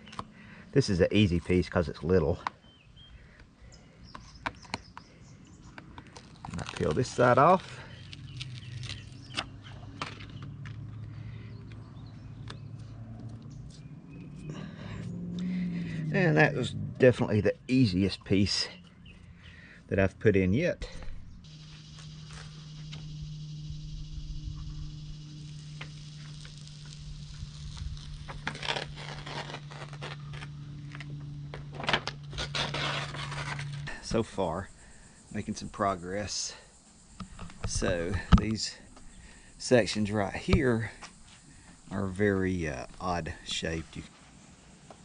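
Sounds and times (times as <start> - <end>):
steady low hum: 0.0 - 45.0
small crackles and clicks: 5.8 - 10.8, 25.4 - 32.2
paper backing crackling: 5.9 - 10.6, 25.5 - 34.0
foam sheet rustling: 25.9 - 30.5.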